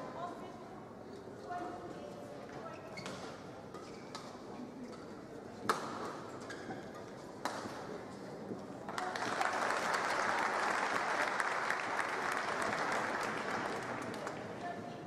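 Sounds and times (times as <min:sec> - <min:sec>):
racket hitting shuttlecock: 0:05.6 - 0:06.2, 0:07.4 - 0:07.8
crowd applauding and cheering: 0:08.9 - 0:14.2.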